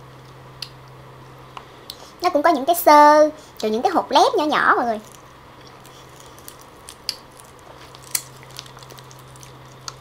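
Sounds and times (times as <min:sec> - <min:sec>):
steady low hum: 0:00.0 - 0:10.0
soft wet chewing: 0:05.0 - 0:10.0.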